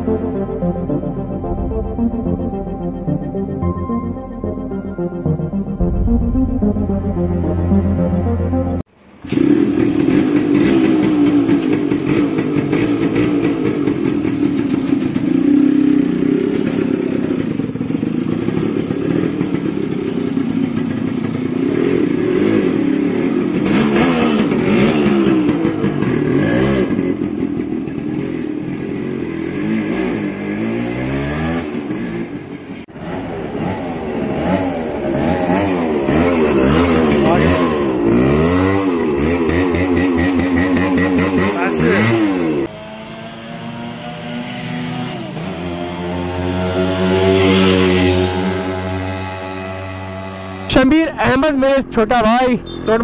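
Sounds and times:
motorcycle engine revving: 5.6 - 53.0.

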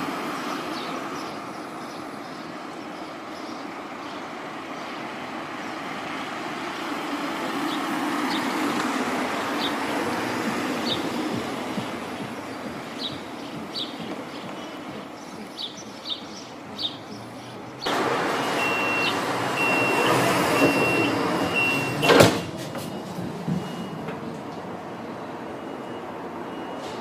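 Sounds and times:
tram noise rushing: 0.0 - 27.0
high warning beeps: 9.3 - 27.0
sliding doors knocking shut: 17.9 - 24.6.

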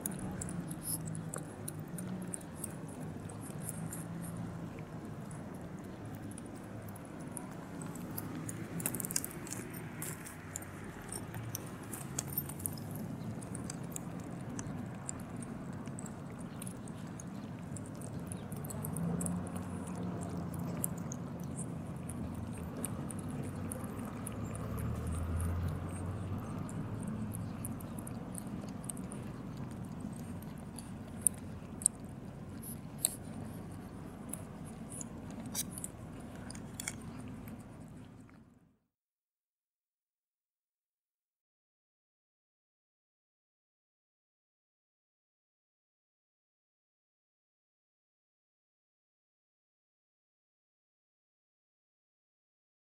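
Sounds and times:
cats lapping milk: 0.0 - 38.6.

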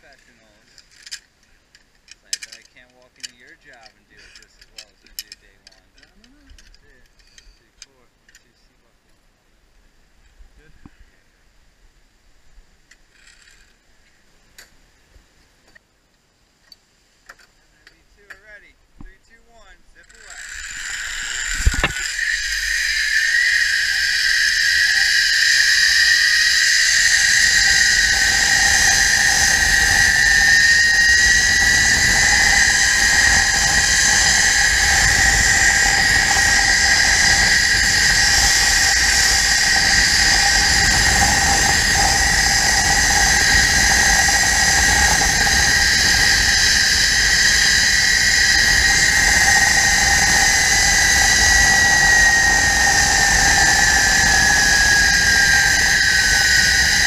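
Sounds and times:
zipline pulleys whining on cable: 12.9 - 13.8, 19.6 - 57.0
wind on microphone: 20.0 - 57.0.

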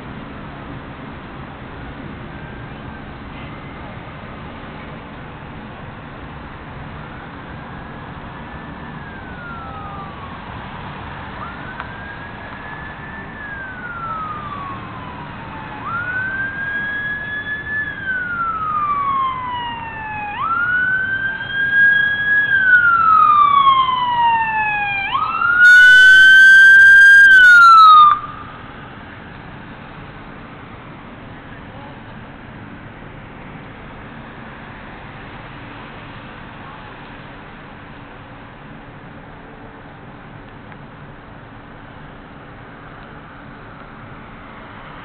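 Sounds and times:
emergency vehicle siren wailing: 2.1 - 4.0, 7.0 - 30.3.

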